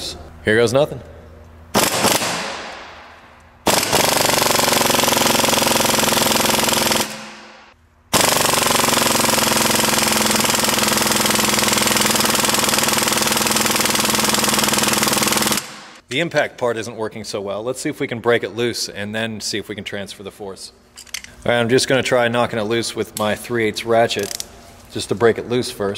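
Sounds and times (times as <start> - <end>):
impact wrench hammering: 3.7 - 16.0.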